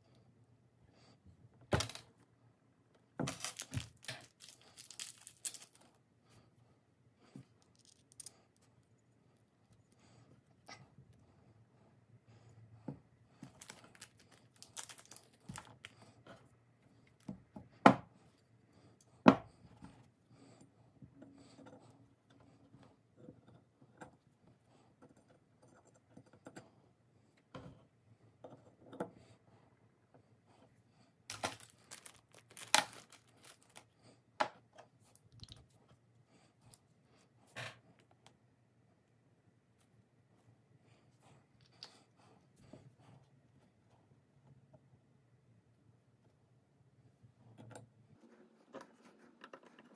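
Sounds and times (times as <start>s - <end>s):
paper rustling and crinkling: 3.2s - 5.9s, 13.4s - 16.0s, 31.3s - 33.9s.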